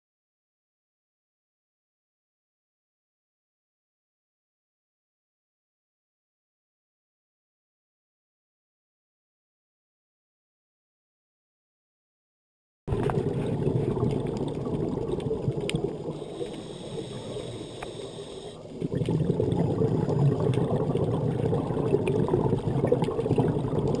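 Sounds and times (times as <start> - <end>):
muffled underwater noise: 12.9 - 24.0
small underwater clicks: 12.9 - 24.0.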